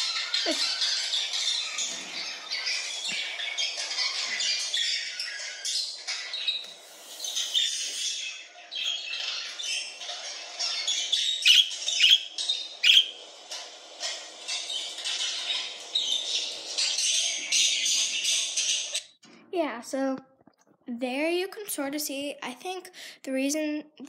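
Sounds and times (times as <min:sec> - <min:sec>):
budgerigars chattering and warbling: 0:00.0 - 0:19.1
sharp loud bird chirps: 0:10.7 - 0:13.2.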